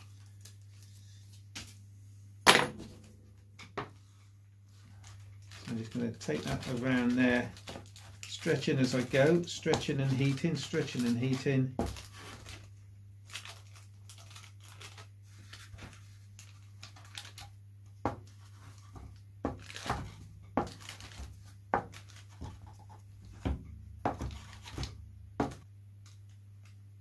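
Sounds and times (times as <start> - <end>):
plastic film crackling: 4.7 - 17.6, 18.5 - 22.8.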